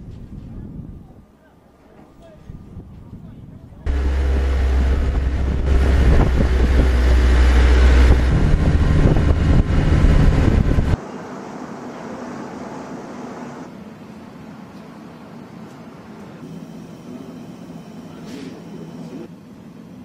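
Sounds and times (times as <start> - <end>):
wind noise: 0.0 - 1.3, 2.4 - 11.0
jet and vehicle engine roar: 3.9 - 13.8.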